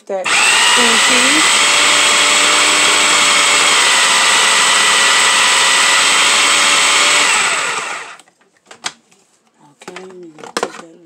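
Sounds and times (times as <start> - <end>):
food processor motor running: 0.2 - 8.2.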